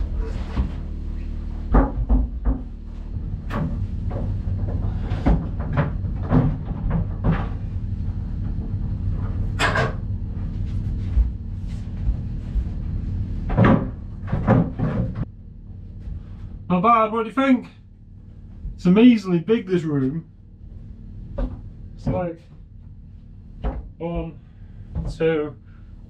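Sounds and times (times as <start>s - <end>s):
steady low hum: 0.0s - 26.0s
wooden boards knocking: 1.7s - 2.8s.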